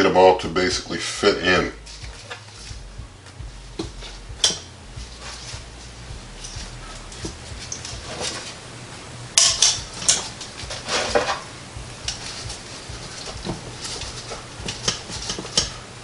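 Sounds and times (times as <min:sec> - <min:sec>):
metal scraping rattle: 0:01.8 - 0:08.6, 0:09.4 - 0:16.0
metal cookware clattering: 0:04.0 - 0:05.4, 0:09.4 - 0:15.8.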